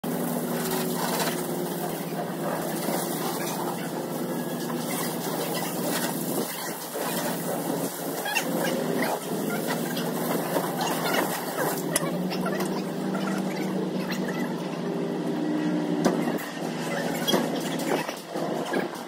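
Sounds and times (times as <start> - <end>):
hose water spraying on car: 0.0 - 15.3.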